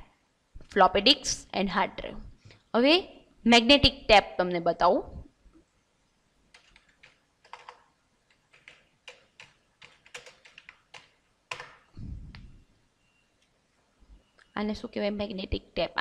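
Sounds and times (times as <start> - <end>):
keyboard typing: 6.5 - 12.4
brief low rumble: 12.0 - 12.6.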